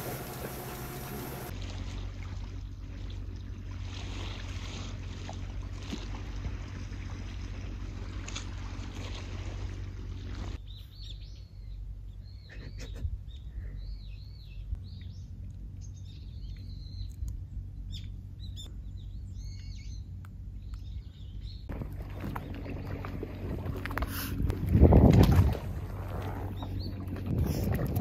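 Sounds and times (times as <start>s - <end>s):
low steady rumble: 0.0s - 28.0s
small birds chirping: 10.6s - 21.7s.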